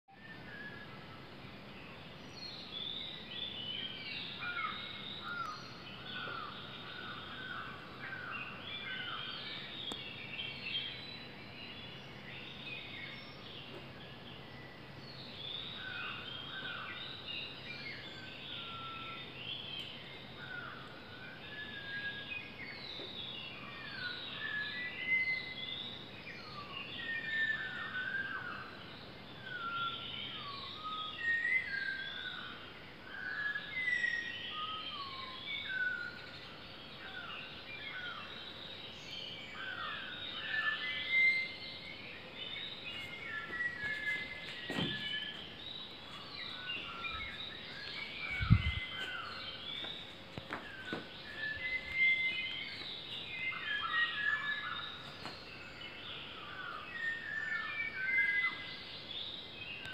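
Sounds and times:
birds whistling and chirping: 21.1s - 28.8s, 29.4s - 32.5s, 33.1s - 59.9s.

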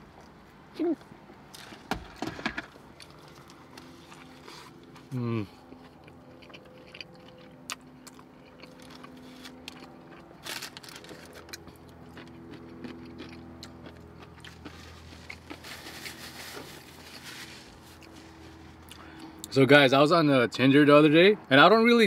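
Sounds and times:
low steady hum: 0.0s - 22.0s
chewing food: 2.8s - 15.9s, 17.8s - 19.5s
paper napkin rustling: 14.8s - 18.8s.

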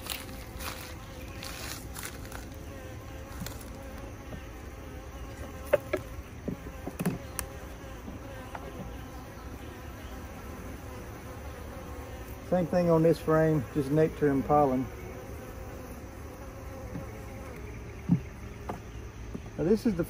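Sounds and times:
honey bees buzzing: 0.0s - 20.0s
hive tool clicks and knocks: 5.6s - 7.5s.

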